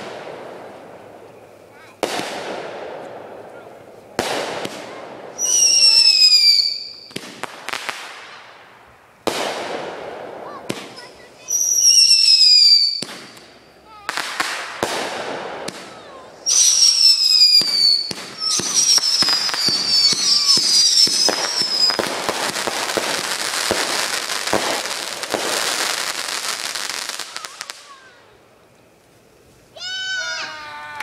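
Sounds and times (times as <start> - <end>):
firework crackling: 0.0 - 31.0
whistling fireworks: 0.0 - 31.0
firework pops: 6.6 - 8.4, 9.2 - 11.1, 12.6 - 16.6, 17.2 - 26.2.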